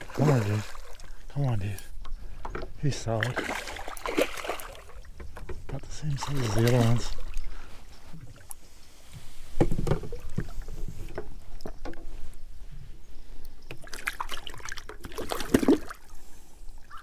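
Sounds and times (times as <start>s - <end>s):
fish splashing in water: 3.2s - 5.1s, 13.8s - 16.1s.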